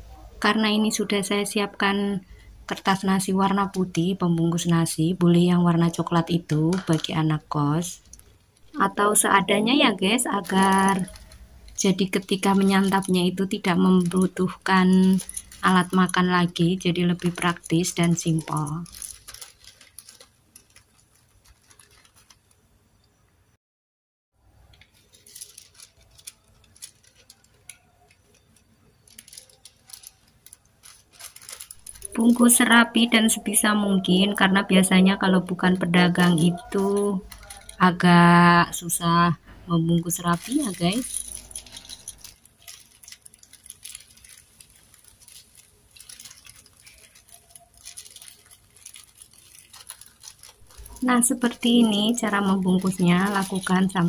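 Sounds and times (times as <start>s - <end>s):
paper crinkling and rustling: 2.7s - 22.7s, 24.7s - 39.0s, 40.0s - 54.0s.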